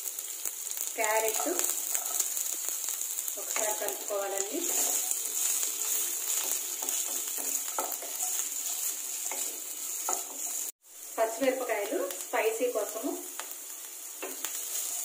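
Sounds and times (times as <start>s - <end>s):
vegetables sizzling in oil: 0.0s - 15.0s
spatula scraping steel pan: 4.6s - 10.7s.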